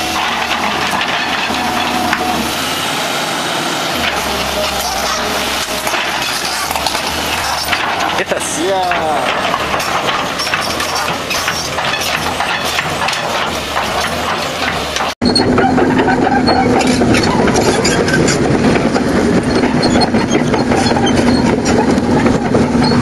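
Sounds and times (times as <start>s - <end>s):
metal clanking and knocking: 0.0s - 2.8s, 3.9s - 23.0s
excavator diesel engines running: 0.0s - 23.0s
excavator engine humming close by: 0.0s - 23.0s.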